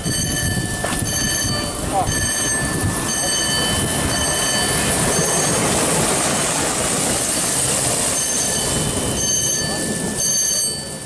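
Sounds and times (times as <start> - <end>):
high ringing tone: 0.0 - 5.8, 8.1 - 11.0
track car rumbling on rails: 0.0 - 11.0.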